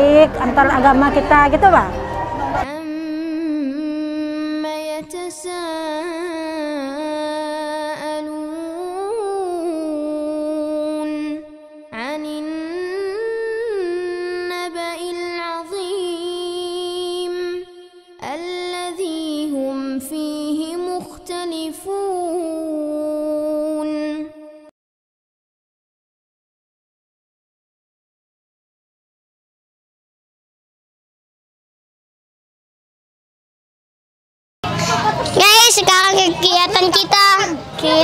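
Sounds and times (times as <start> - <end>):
woman singing slow melody: 2.6 - 24.7.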